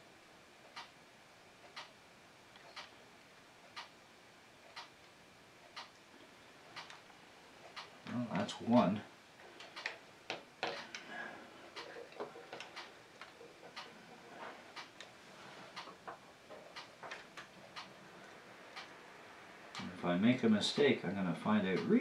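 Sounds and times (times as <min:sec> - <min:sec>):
light clicks and taps: 0:07.7 - 0:11.1, 0:11.7 - 0:15.1, 0:15.8 - 0:17.9.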